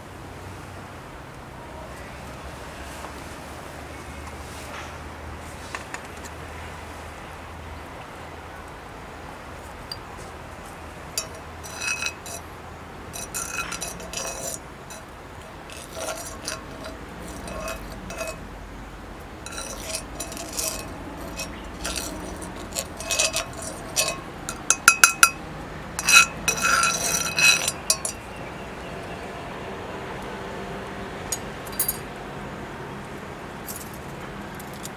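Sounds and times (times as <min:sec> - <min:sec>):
utensils clinking against cookware: 0:11.2 - 0:12.4, 0:13.1 - 0:15.1, 0:15.7 - 0:18.4, 0:19.4 - 0:25.4, 0:26.0 - 0:28.3.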